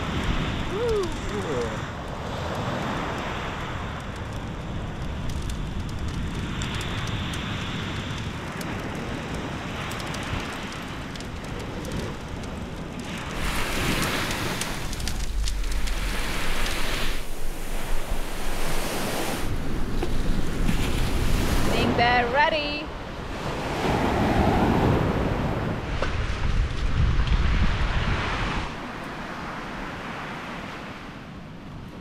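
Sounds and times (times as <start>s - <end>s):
campfire coals crackling and hissing: 0.0s - 30.9s
wind rumbling on microphone: 0.0s - 32.0s.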